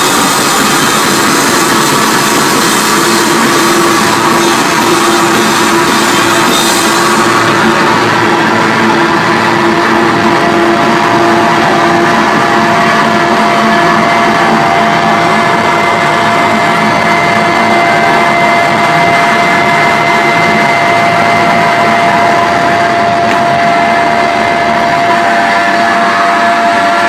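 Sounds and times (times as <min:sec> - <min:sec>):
electric guitar and bass noise: 0:00.0 - 0:27.0
guitar feedback tones: 0:00.0 - 0:27.0.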